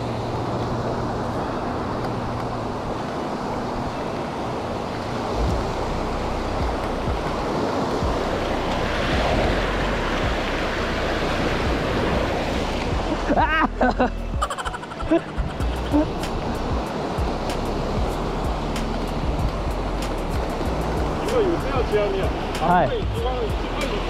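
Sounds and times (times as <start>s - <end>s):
sea waves washing up beach: 0.0s - 24.0s
wind buffeting microphone: 3.7s - 13.6s.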